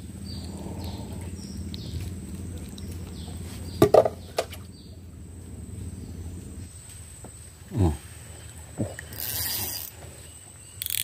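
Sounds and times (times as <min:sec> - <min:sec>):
steady low hum: 0:00.0 - 0:11.0
sharp clicks of fishing line: 0:09.0 - 0:10.0, 0:10.8 - 0:11.0.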